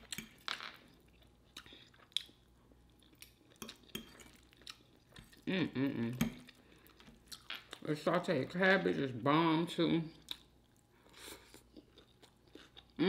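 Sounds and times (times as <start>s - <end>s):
chewing: 1.1s - 5.5s, 10.2s - 13.0s
wordless voice: 7.8s - 10.2s.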